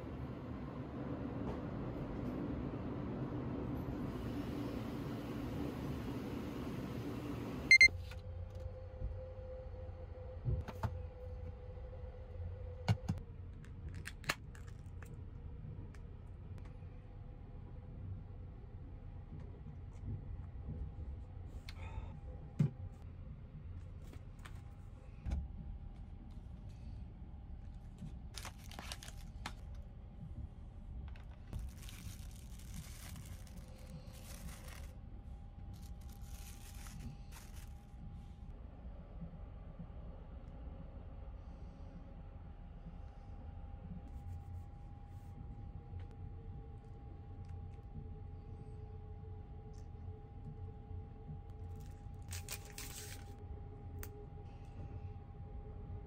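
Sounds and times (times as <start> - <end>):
plastic film crinkling: 28.3 - 29.8, 31.6 - 35.0, 35.7 - 37.8, 52.2 - 53.4.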